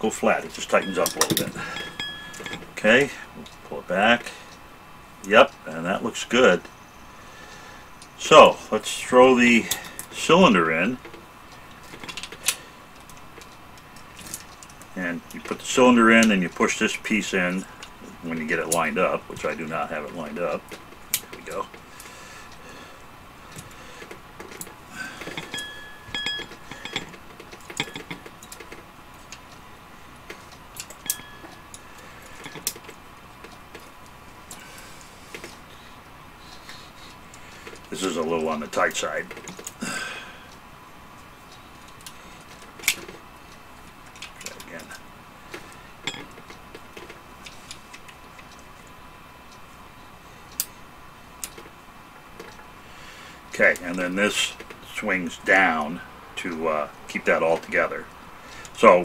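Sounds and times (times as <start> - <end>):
brief metallic rings: 0.8 - 2.7, 25.4 - 27.1, 31.0 - 31.6.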